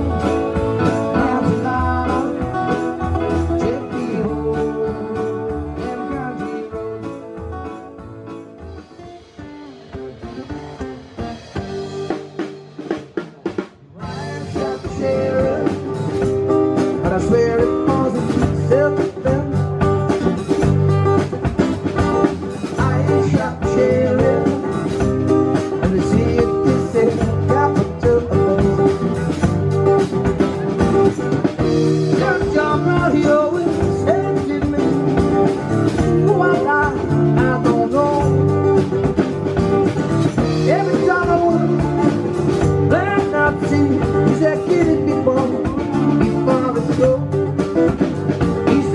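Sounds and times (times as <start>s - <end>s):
man singing: 0.0s - 7.7s, 13.9s - 20.1s, 22.0s - 29.6s, 30.4s - 39.2s, 40.1s - 48.9s
acoustic guitars strummed: 0.0s - 48.9s
drum kit beat: 0.0s - 48.9s.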